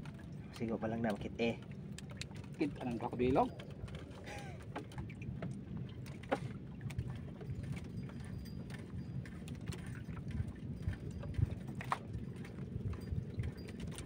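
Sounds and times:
fishing gear clicks and knocks: 0.0s - 14.0s
water washing around boat: 0.0s - 14.0s.

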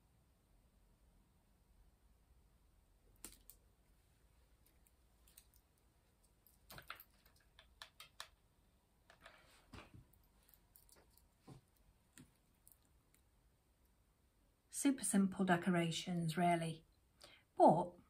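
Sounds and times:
craft pieces clicking on mat: 6.4s - 8.4s.

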